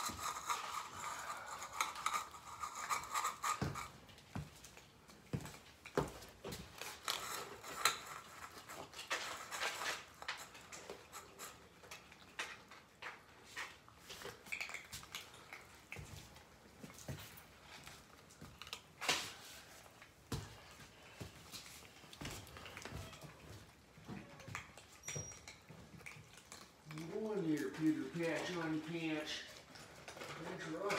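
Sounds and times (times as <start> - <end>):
cat food bowls clicking and rattling: 0.0 - 30.9.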